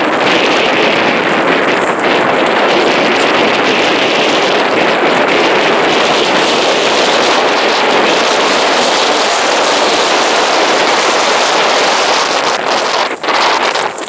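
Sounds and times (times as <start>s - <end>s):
wind blowing over microphone: 0.0s - 14.0s.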